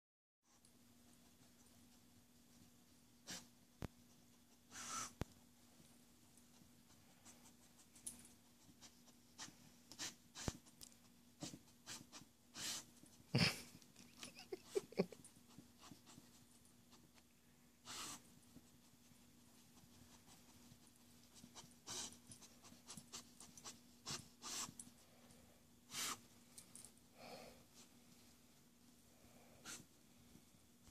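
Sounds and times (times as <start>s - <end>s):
faint steady hum: 0.5s - 30.9s
dog sniffing: 3.2s - 5.2s, 6.5s - 13.3s, 15.4s - 17.2s, 17.8s - 25.0s, 25.9s - 26.3s, 29.5s - 29.9s.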